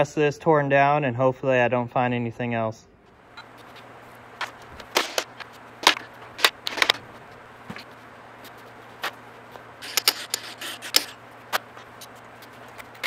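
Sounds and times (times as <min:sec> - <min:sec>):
metal tools clinking on engine parts: 0:09.8 - 0:11.2.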